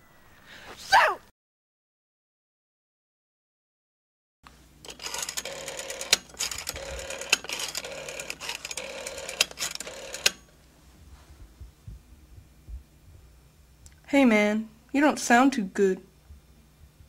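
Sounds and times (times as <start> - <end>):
rotary telephone dial whirring: 4.8 - 10.5.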